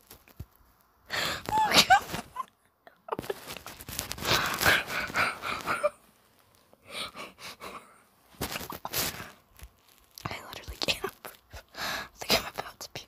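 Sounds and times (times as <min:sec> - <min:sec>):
breathy wheezing laughter: 0:04.6 - 0:06.0.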